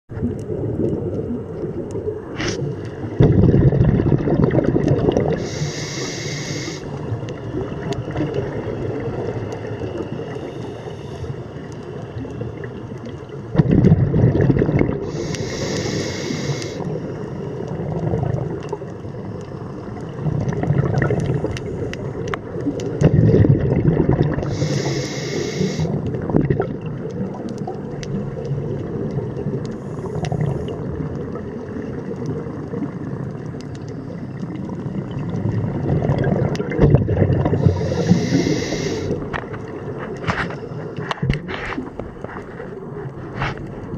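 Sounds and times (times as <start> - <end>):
low underwater rumble: 0.1 - 5.4, 25.9 - 43.9
exhaled air bubbling: 0.1 - 43.9
regulator inhalation hiss: 5.4 - 7.0, 15.0 - 16.9, 24.4 - 26.0, 37.6 - 39.2.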